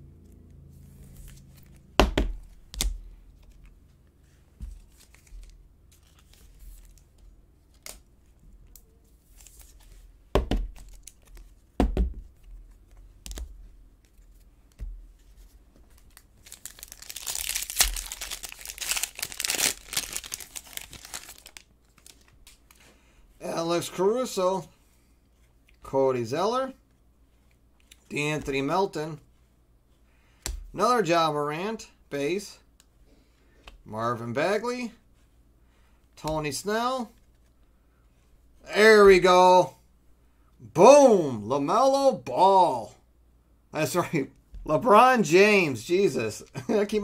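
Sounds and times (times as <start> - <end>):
trading cards being handled: 0.8 - 22.9
cards knocking on table: 2.0 - 3.0, 10.4 - 10.8, 11.8 - 12.3
foil wrapper tearing and crinkling: 16.0 - 22.3.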